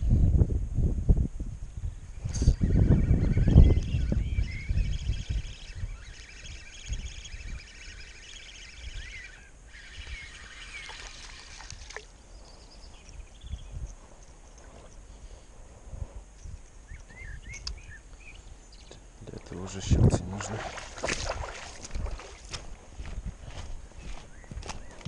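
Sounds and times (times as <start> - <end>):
birds chirping and singing: 1.9 - 11.5, 12.2 - 15.4, 16.4 - 25.0.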